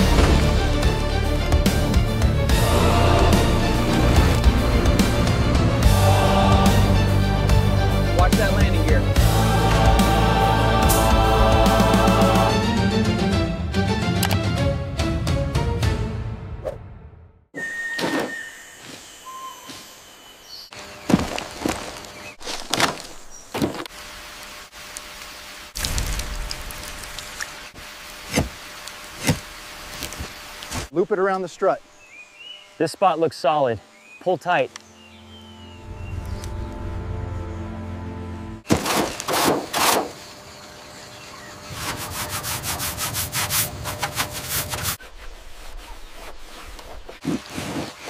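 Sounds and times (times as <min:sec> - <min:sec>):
boots crunching on leaves: 0:20.9 - 0:23.8
hand scrubbing metal plate: 0:41.7 - 0:48.0.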